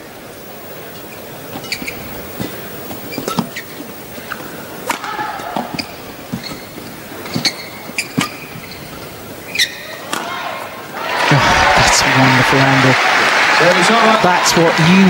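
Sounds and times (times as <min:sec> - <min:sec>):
shoes squeaking on court: 0:00.9 - 0:10.2
rackets striking shuttlecock: 0:04.8 - 0:06.5
crowd murmur: 0:10.6 - 0:15.0.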